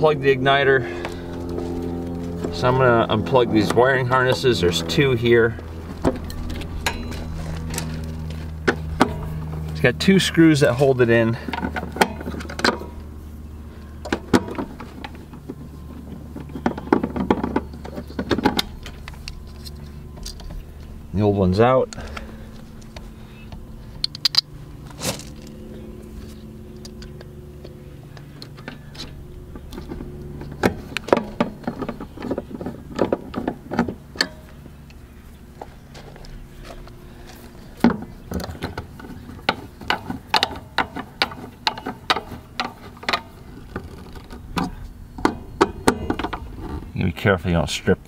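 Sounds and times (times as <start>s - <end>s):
steady low hum: 0.0s - 48.0s
clicks and rattles of handling parts: 10.6s - 13.0s, 14.0s - 20.9s, 21.9s - 46.9s.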